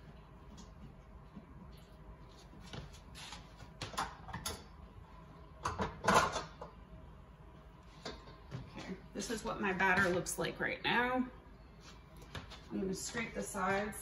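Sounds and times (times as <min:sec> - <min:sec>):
kitchen things knocking: 0:05.6 - 0:06.6.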